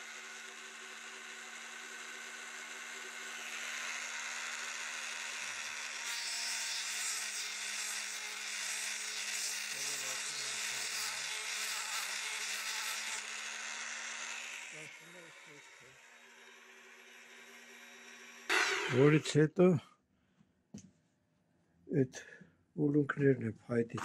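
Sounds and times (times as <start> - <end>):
small electric motor humming: 0.0 - 19.3
wood shaping hissing rasp: 6.0 - 13.2, 18.5 - 19.2.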